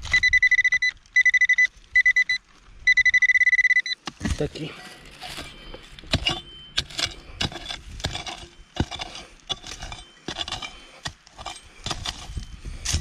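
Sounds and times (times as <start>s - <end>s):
hand digger chopping dry soil: 4.0s - 13.0s.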